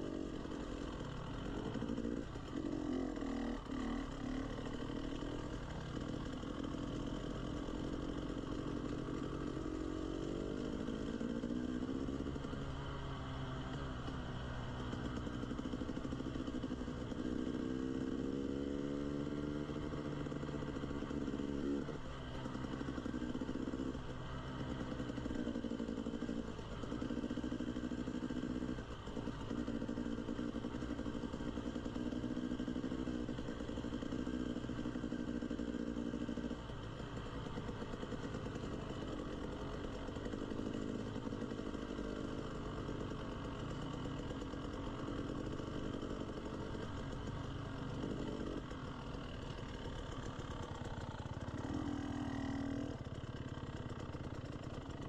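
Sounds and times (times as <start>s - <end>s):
dirt bike engine revving: 0.0s - 13.3s, 47.9s - 53.0s.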